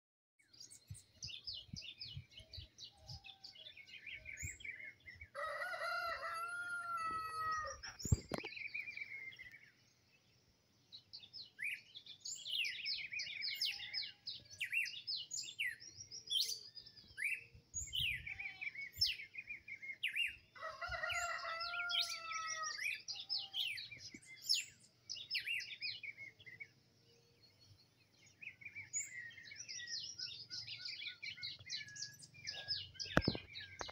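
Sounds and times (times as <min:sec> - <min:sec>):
songbirds chirping: 0:00.4 - 0:33.9
rooster crowing: 0:05.4 - 0:07.8, 0:20.6 - 0:22.8.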